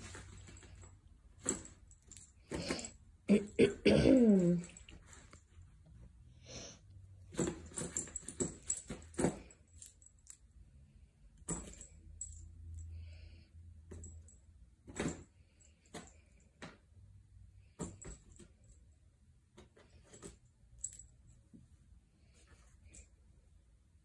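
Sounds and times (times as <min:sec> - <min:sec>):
toy jingling: 0:07.4 - 0:10.4.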